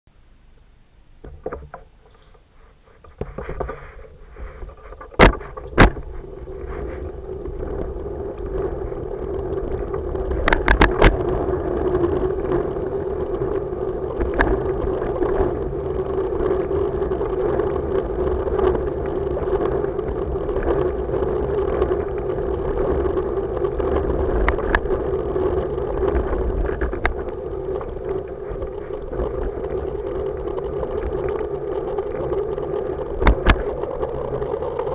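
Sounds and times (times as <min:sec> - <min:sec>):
hoverboard rolling on pavement: 0:01.1 - 0:34.9.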